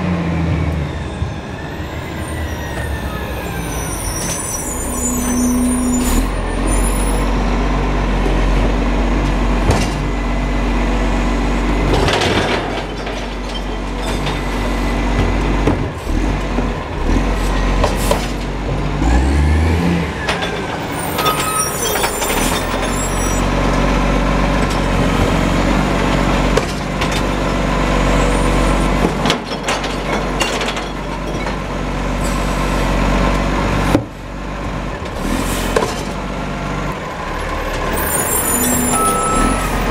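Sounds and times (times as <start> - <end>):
garbage truck diesel engine running: 0.0 - 39.9
truck clunks: 8.1 - 10.4, 11.5 - 39.9.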